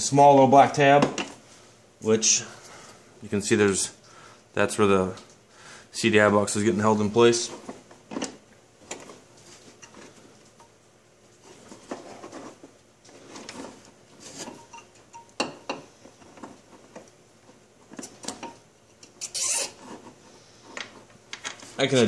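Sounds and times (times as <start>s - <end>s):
scraping rustle: 11.3s - 14.7s.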